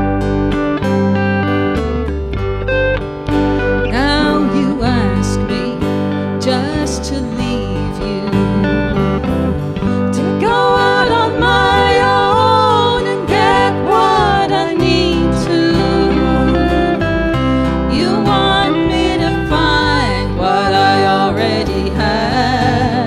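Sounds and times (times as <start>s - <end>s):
electric guitar: 0.0s - 23.0s
strummed acoustic guitar: 0.0s - 23.0s
woman singing: 3.9s - 9.2s, 10.0s - 23.0s.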